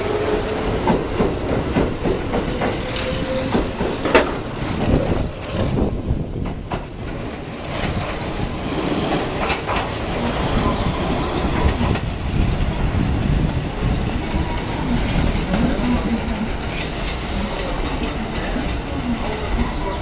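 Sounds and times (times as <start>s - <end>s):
train wheels clacking over rail joints: 0.4s - 12.1s.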